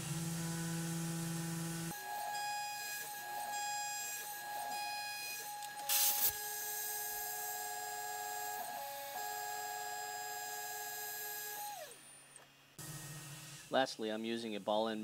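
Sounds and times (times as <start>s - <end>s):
milling machine whine: 0.0s - 13.7s
loud burst of hiss: 5.9s - 6.4s.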